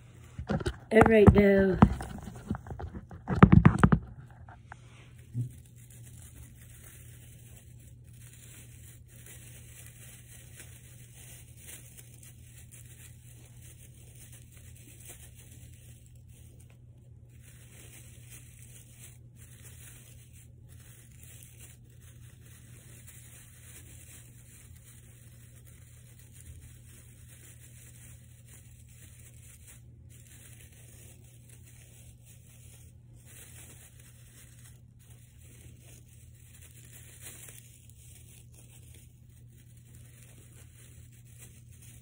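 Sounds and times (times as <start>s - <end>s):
faint rustling and scratching: 0.0s - 42.0s
phone handling rustle and knock: 0.3s - 4.6s.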